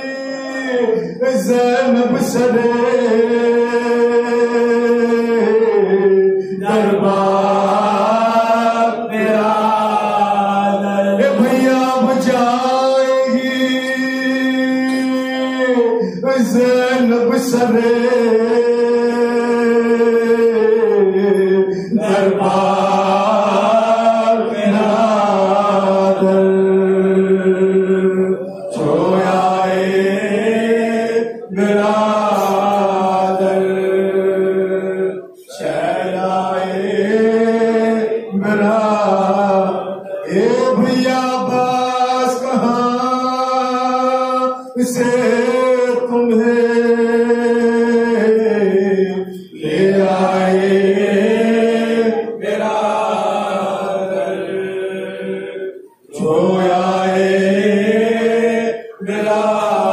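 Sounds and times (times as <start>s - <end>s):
men chanting into a microphone: 0.0s - 59.9s.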